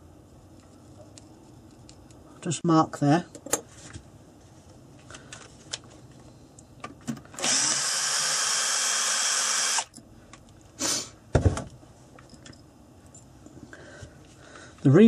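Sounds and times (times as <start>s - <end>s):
cordless drill drilling: 7.4s - 9.9s.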